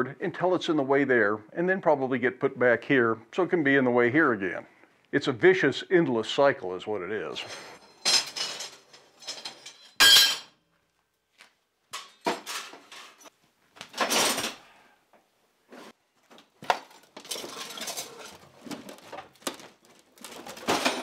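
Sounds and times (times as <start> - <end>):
steel pieces clanking and clattering: 7.4 - 10.5, 11.9 - 13.3, 16.7 - 19.6, 20.2 - 21.0.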